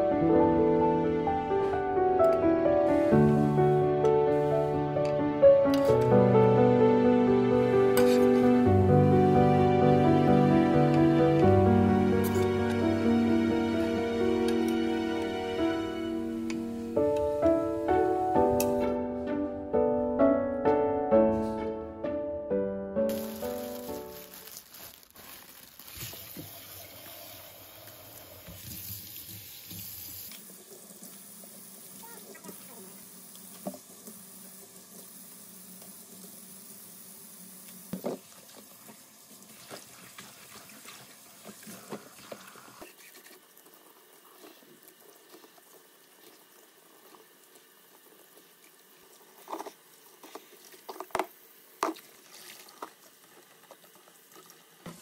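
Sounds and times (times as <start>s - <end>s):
tap water running into sink: 25.8s - 55.0s.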